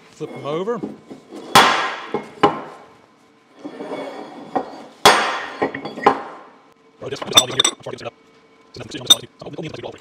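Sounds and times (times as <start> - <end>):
metal pieces clanking on metal: 7.2 - 7.8.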